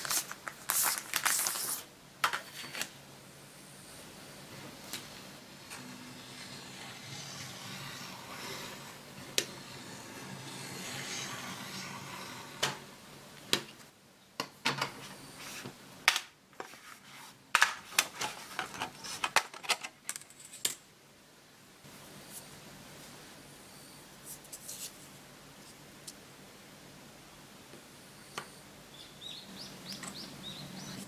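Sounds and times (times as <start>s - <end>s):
knife scoring along ruler: 5.8s - 12.6s.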